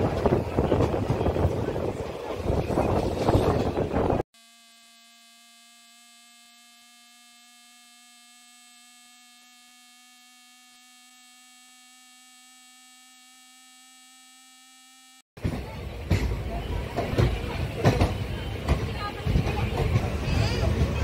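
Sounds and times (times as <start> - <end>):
faint buzzing hum: 3.3 - 15.2.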